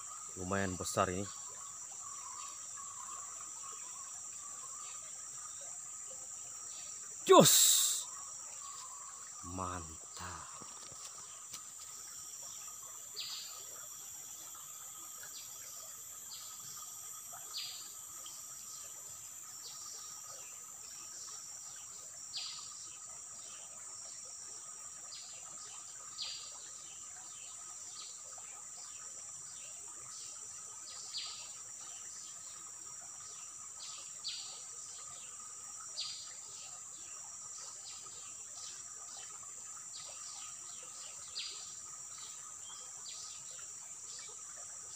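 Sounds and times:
high-pitched insect drone: 0.0s - 28.2s.

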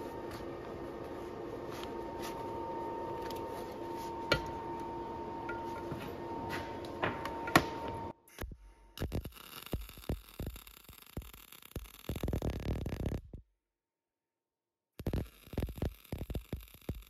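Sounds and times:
steady hum with thin whine: 0.0s - 8.2s
welding arc crackling: 8.4s - 13.4s, 15.0s - 17.0s.

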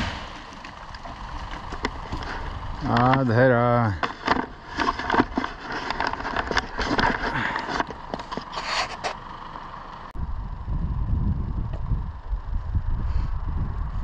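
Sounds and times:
wood and brush cracking: 0.0s - 9.2s
low rumble: 10.1s - 14.0s.

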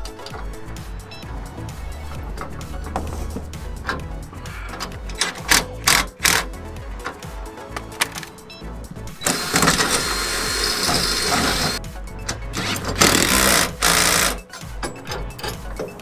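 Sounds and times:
background music: 0.0s - 16.0s
cordless drill boring into steel: 9.2s - 11.8s, 12.6s - 14.4s.

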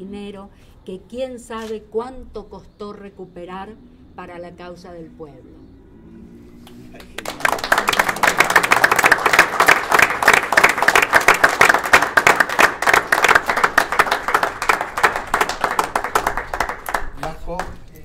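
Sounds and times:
audience applauding: 6.7s - 17.8s.

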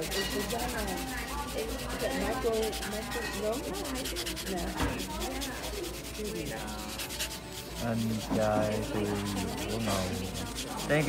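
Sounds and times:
sanding block rasping on nails: 0.0s - 11.0s.

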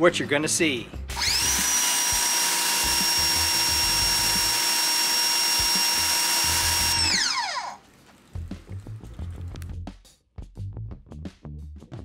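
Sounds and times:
electric motor whining: 1.1s - 7.8s.

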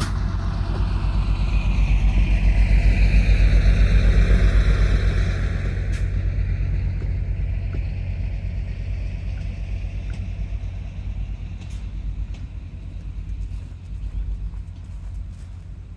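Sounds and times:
diesel railcar rumble: 0.0s - 15.9s.

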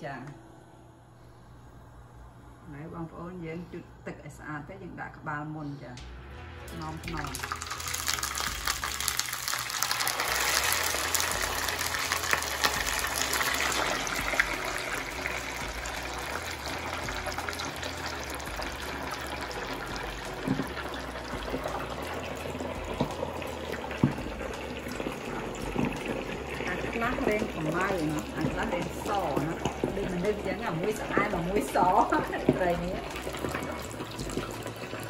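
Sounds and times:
fish sizzling in hot oil: 7.1s - 35.0s.

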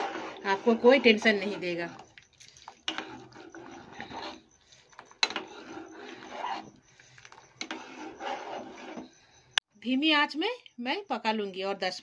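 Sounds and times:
metal spoon scraping a pot: 0.0s - 9.3s.

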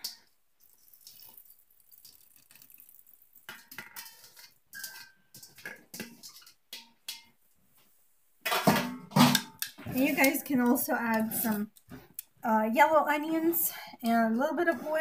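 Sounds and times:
wet rustling of vegetables: 9.8s - 15.0s.

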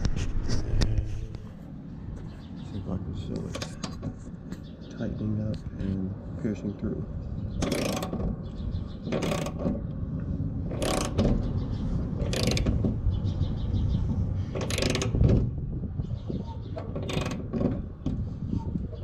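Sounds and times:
socket ratchet clicking: 14.6s - 15.2s.

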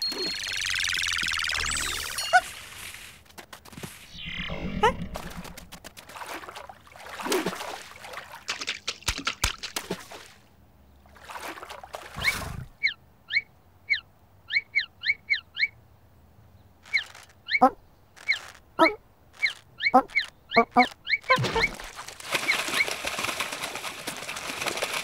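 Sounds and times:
squeaky chirps falling in pitch: 0.0s - 2.5s, 16.9s - 21.8s
cartoon whooshing: 4.0s - 5.8s.

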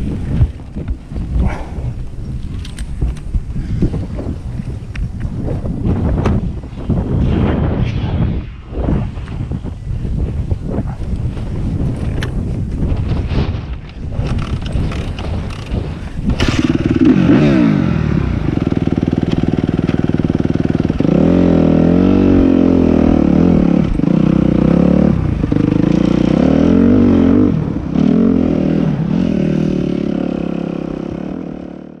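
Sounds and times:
motocross engine revving: 16.3s - 32.0s.

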